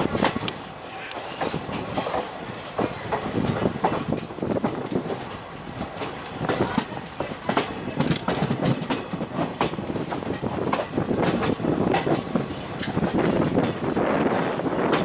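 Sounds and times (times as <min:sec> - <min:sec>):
train wheels clattering over joints: 0:00.0 - 0:15.0.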